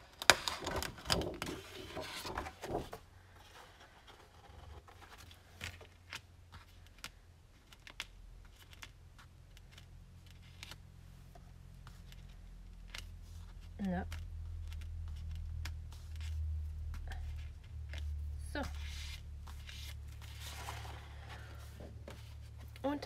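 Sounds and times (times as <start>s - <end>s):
paper sheets rustling: 0.0s - 10.8s, 14.6s - 23.0s
faint paper clicks: 5.2s - 10.8s.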